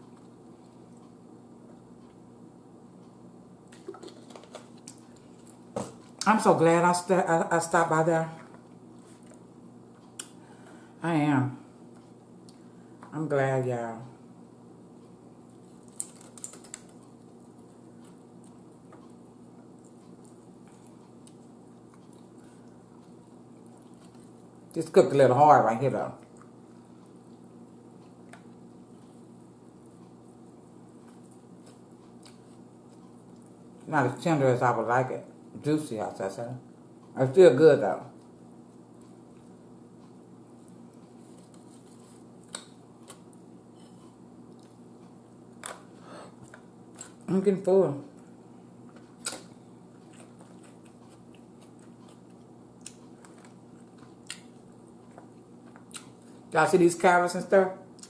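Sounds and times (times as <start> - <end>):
low room hum: 0.0 - 58.0
eating clicks and wet noises: 15.5 - 24.8, 38.9 - 47.3, 48.1 - 56.5.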